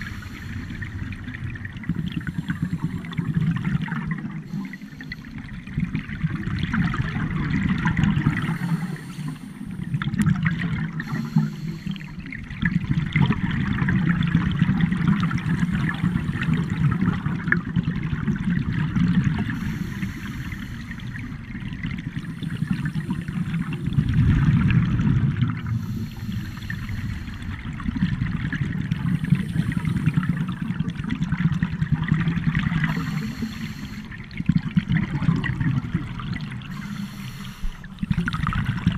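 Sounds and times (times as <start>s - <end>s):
underwater regulator bubbling: 0.0s - 38.9s.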